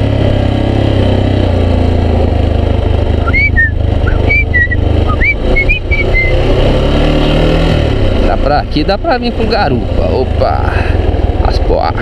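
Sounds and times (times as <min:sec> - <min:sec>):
motorcycle engine running: 0:00.0 - 0:12.0
short high whistle-like notes: 0:03.2 - 0:06.4.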